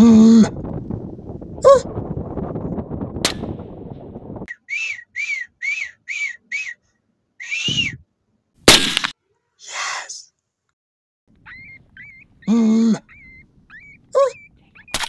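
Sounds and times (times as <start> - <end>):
low wind rumble: 0.0 - 4.5
high whistle-like calls: 4.5 - 6.8, 7.4 - 8.0, 11.4 - 15.0.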